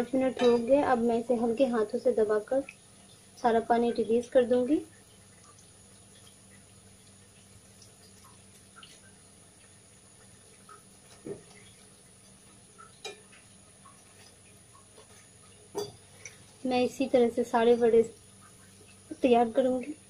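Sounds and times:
water dripping into water: 0:00.2 - 0:20.0
wet squeezing sounds: 0:04.2 - 0:16.7.

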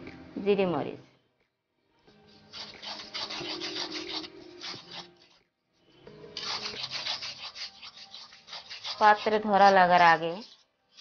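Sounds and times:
metal spatula scraping pan: 0:02.1 - 0:05.4, 0:06.2 - 0:11.0
paste frying: 0:02.1 - 0:05.5, 0:06.3 - 0:11.0.

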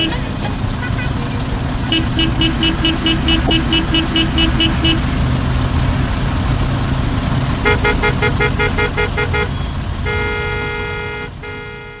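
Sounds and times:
car horn beeping: 0:00.0 - 0:01.2, 0:01.8 - 0:05.1, 0:07.6 - 0:12.0.

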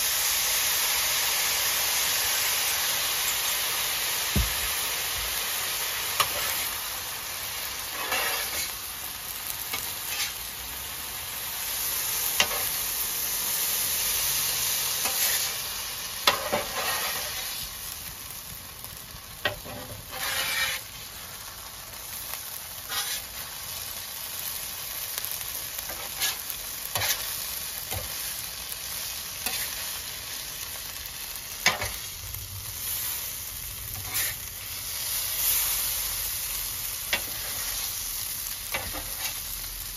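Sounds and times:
rice sizzling on a griddle: 0:00.0 - 0:39.9
metal spatula scraping griddle: 0:06.2 - 0:06.8, 0:07.8 - 0:08.8, 0:09.7 - 0:10.4, 0:12.4 - 0:12.8, 0:15.0 - 0:15.6, 0:16.2 - 0:17.6, 0:19.4 - 0:21.0, 0:22.7 - 0:23.6, 0:25.8 - 0:28.3, 0:29.1 - 0:30.0, 0:31.6 - 0:32.1, 0:33.9 - 0:34.5, 0:37.1 - 0:38.0, 0:38.7 - 0:39.5.

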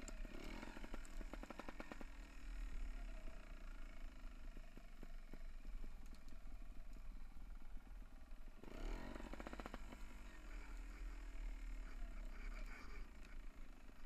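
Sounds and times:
bike rattling on dirt trail: 0:00.0 - 0:02.6, 0:08.6 - 0:11.7.

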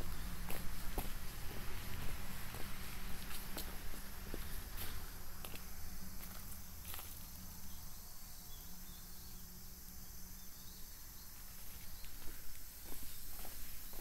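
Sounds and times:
footsteps on concrete: 0:00.0 - 0:07.2, 0:11.6 - 0:14.0.

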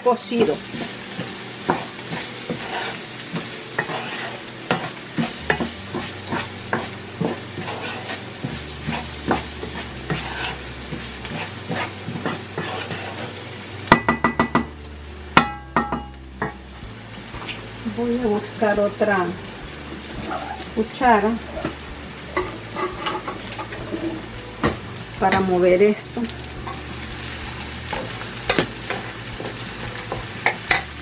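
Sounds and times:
rice sizzling in pot: 0:00.0 - 0:31.0
wooden spoon scraping pot: 0:00.4 - 0:13.5, 0:20.0 - 0:24.3.

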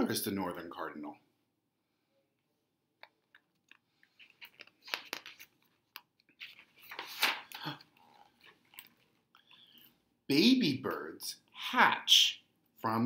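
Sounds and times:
paper rustling and crinkling: 0:03.9 - 0:09.2
paper crackling: 0:04.0 - 0:09.2.

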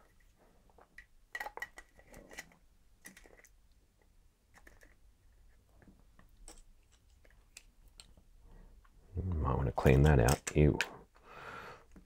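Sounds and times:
plastic clicks and scrapes: 0:00.9 - 0:03.6, 0:04.5 - 0:05.0.

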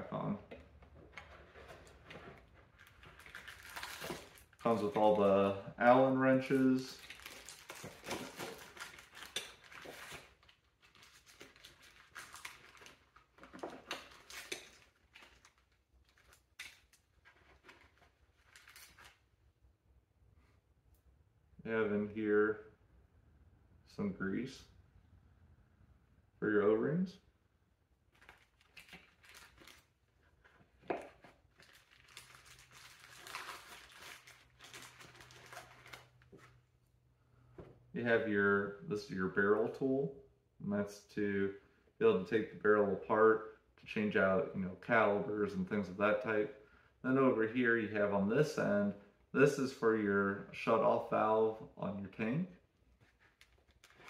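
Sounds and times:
plastic bags rustling: 0:01.1 - 0:05.4, 0:06.0 - 0:19.2, 0:28.1 - 0:36.7, 0:53.0 - 0:54.0.

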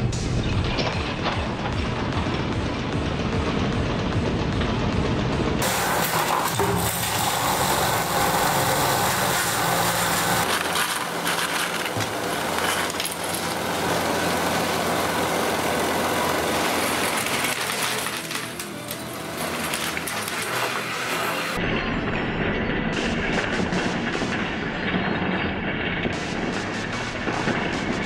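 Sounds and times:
treadmill belt and motor running: 0:01.4 - 0:21.6
plastic pieces clattering: 0:05.6 - 0:21.6.

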